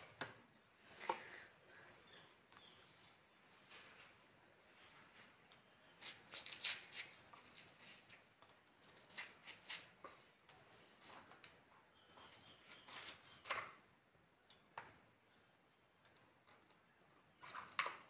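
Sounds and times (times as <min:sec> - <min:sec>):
knife cutting watermelon: 0:06.0 - 0:08.2, 0:08.8 - 0:10.1.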